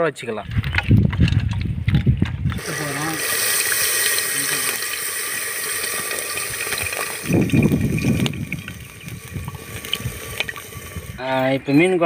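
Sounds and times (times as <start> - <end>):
liquid bubbling and swirling: 1.5 - 11.2
liquid poured into hot pot hissing: 2.5 - 11.2.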